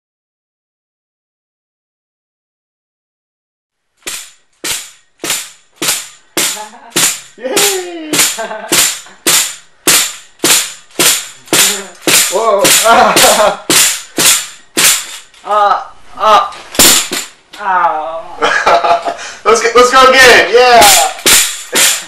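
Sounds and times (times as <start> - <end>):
pogo stick spring impacts: 4.0 - 15.4, 16.7 - 17.4, 20.8 - 22.0.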